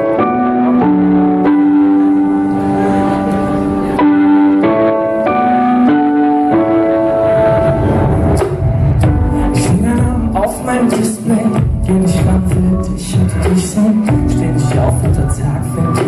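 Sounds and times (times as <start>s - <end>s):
live band playing pop chords: 0.0s - 16.0s.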